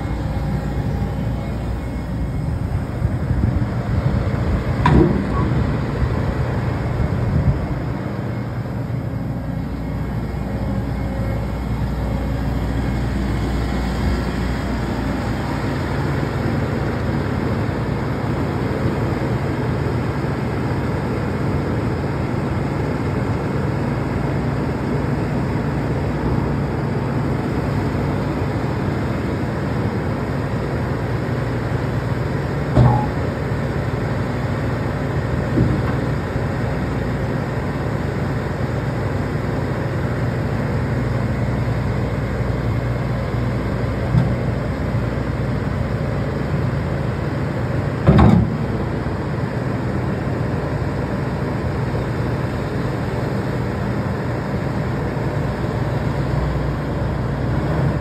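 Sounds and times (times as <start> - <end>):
excavator diesel engine running: 0.0 - 58.0
excavator bucket clunks: 4.8 - 5.7, 32.7 - 33.3, 35.5 - 36.1, 48.0 - 48.8.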